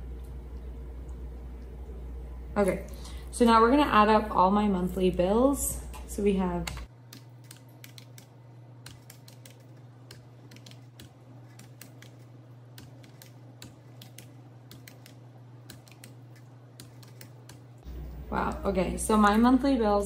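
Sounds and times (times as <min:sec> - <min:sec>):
faint low hum: 0:00.0 - 0:20.0
calculator keys clicking: 0:08.9 - 0:12.2.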